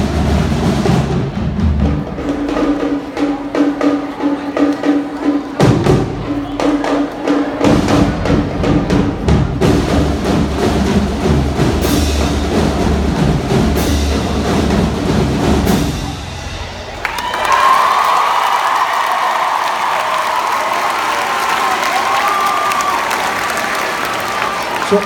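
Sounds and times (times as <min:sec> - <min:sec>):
marching drumline cadence: 0:00.0 - 0:25.0
bass drum strokes: 0:07.6 - 0:17.0.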